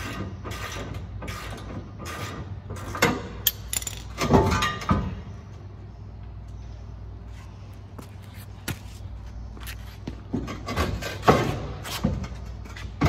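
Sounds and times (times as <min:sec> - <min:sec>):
steady low hum: 0:02.7 - 0:13.0.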